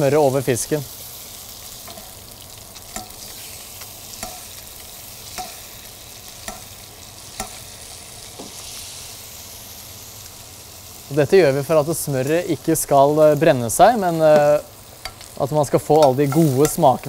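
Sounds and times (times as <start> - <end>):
fish sizzling in butter: 0.0 - 17.0
metal spoon clinking on pan: 2.9 - 3.2, 4.2 - 4.5, 5.4 - 5.6.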